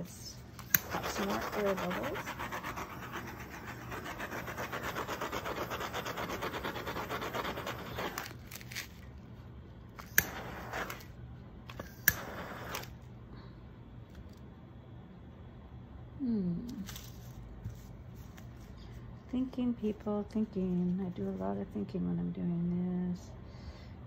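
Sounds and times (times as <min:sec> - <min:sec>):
heat gun blowing air: 0:11.8 - 0:12.9.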